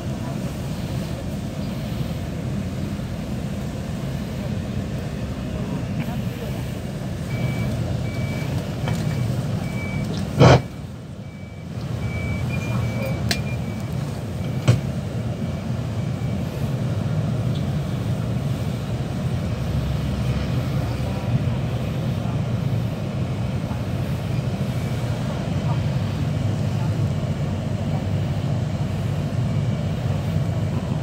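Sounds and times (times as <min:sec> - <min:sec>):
bus cabin rumble: 0:00.0 - 0:31.0
high electronic beep: 0:07.3 - 0:10.7, 0:11.3 - 0:14.7.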